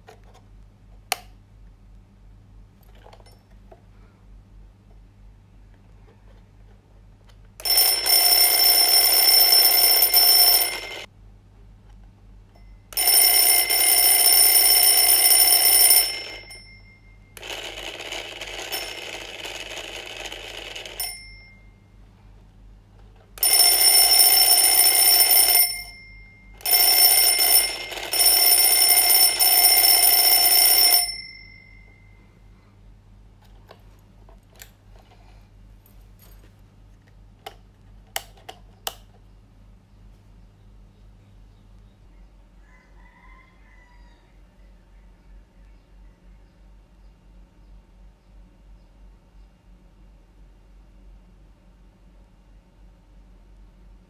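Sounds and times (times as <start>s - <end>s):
twin-bell alarm clock ringing: 7.6s - 11.1s, 13.0s - 21.7s, 23.4s - 32.2s.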